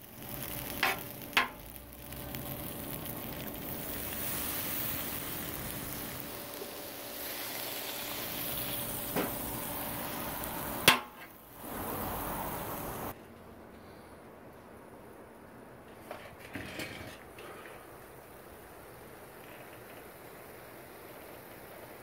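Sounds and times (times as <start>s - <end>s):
food sizzling on a griddle: 0.0s - 13.2s, 18.0s - 22.0s.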